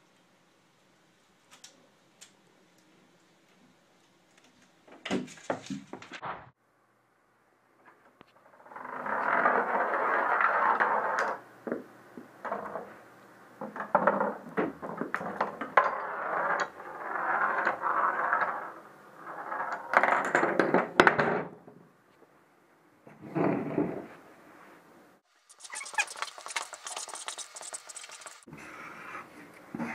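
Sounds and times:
rolling on wooden track: 8.6s - 13.0s, 13.6s - 21.4s.

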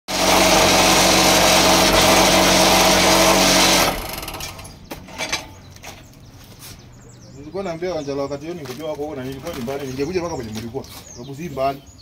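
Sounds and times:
vibrating machine rattling hum: 0.1s - 4.8s.

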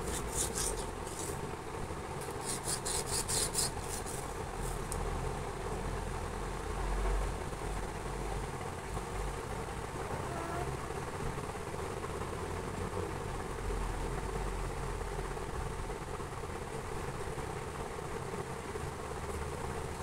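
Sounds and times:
pen scraping on windowsill: 0.0s - 1.4s, 2.2s - 4.9s
steady low hum: 0.0s - 20.0s.

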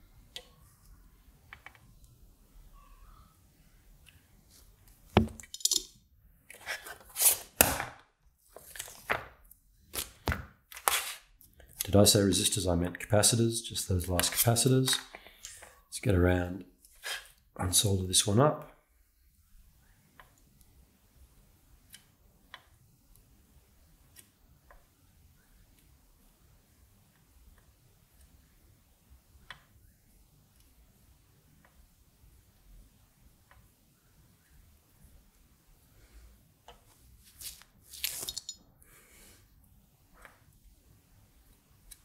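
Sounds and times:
circuit board knocking on mat: 5.2s - 5.4s.

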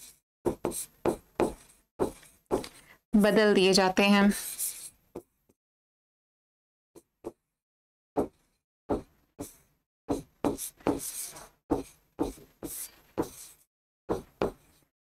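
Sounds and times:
pen scratching on screen: 0.0s - 2.8s, 4.3s - 5.0s, 8.2s - 14.9s
pen tapping on screen: 10.1s - 11.1s.

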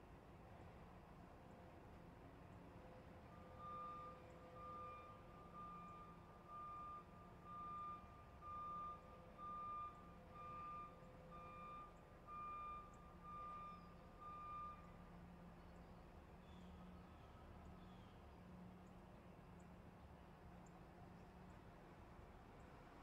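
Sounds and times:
truck reversing alarm beeping: 3.3s - 15.3s.

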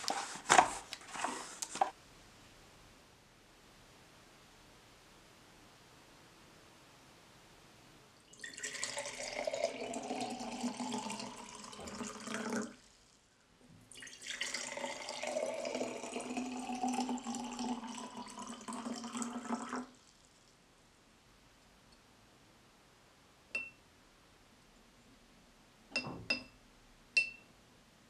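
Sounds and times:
water pouring into glass jars: 8.2s - 12.9s, 13.9s - 20.3s.

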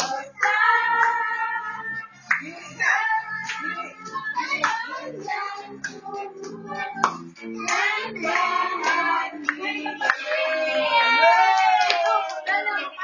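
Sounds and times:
hand claps: 0.0s - 0.6s, 2.2s - 2.6s, 4.5s - 5.0s, 5.8s - 10.5s, 11.4s - 12.6s
children and women singing: 0.0s - 11.5s.

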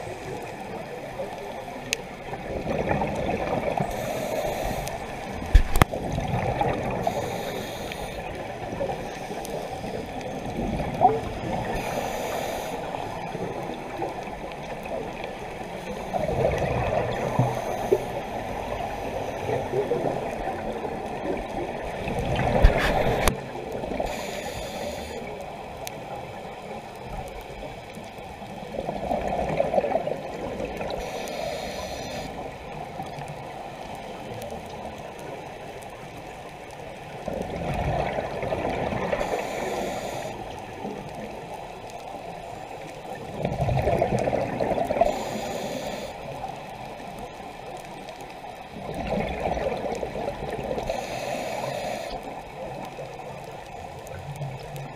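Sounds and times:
underwater bubbling exhale: 0.0s - 35.8s, 37.0s - 54.9s
regulator hiss: 3.8s - 5.8s, 6.9s - 10.3s, 11.6s - 13.6s, 17.1s - 19.6s, 22.6s - 25.4s, 30.8s - 32.5s, 39.2s - 40.7s, 45.0s - 46.5s, 50.7s - 52.8s.

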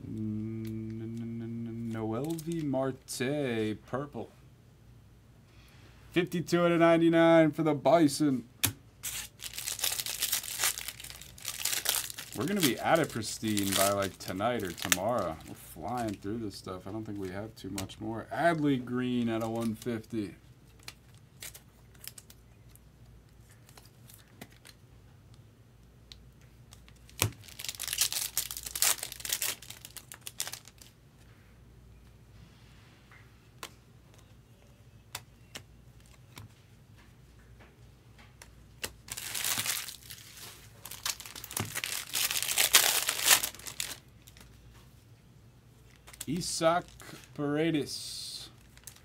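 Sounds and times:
wrapper tearing and crinkling: 2.1s - 2.6s, 9.0s - 16.2s, 18.5s - 20.0s, 20.7s - 22.4s, 26.8s - 30.9s, 38.8s - 44.5s, 45.9s - 47.4s, 48.6s - 49.0s.

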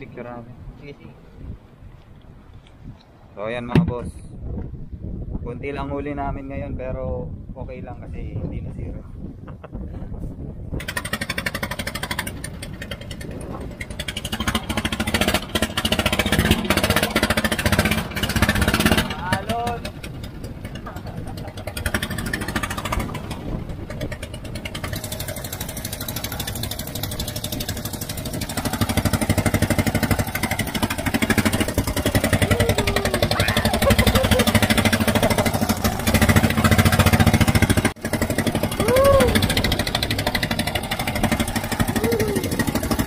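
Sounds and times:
wind: 0.0s - 43.0s
boat engine chugging: 10.8s - 43.0s
waves splashing along hull: 10.9s - 38.0s.

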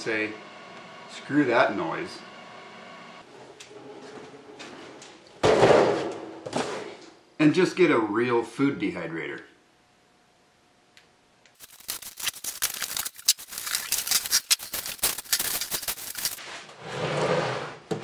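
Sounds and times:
cardboard rustling: 11.6s - 16.4s
plastic wrapping crinkling: 11.6s - 16.4s.

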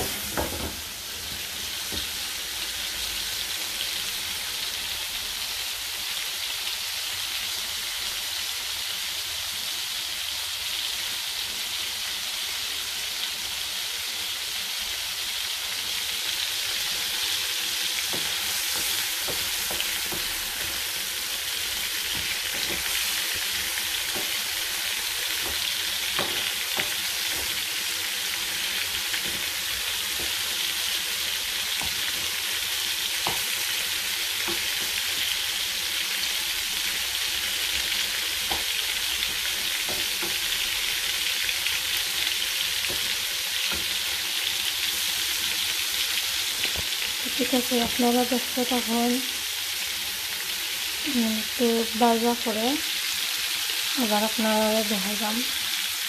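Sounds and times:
prawns sizzling in hot oil: 0.0s - 56.0s
wooden spatula scraping: 17.9s - 33.7s.

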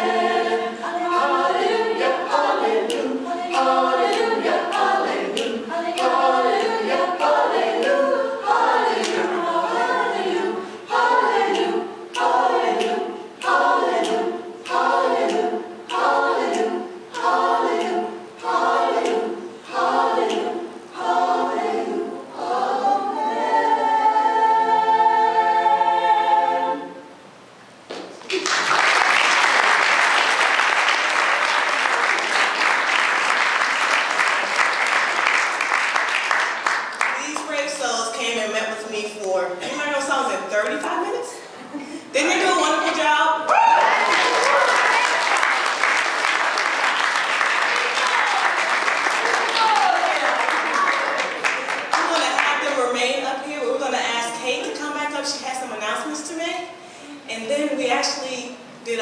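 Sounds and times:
choir singing a cappella: 0.0s - 27.2s
audience applause: 28.3s - 37.2s, 43.5s - 52.4s.

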